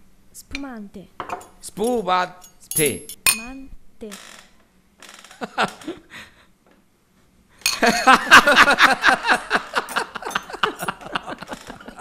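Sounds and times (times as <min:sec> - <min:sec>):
glasses clinking: 0:01.2 - 0:03.5, 0:07.6 - 0:08.1, 0:09.8 - 0:10.8
group laughing loudly: 0:05.4 - 0:06.0, 0:07.8 - 0:12.0.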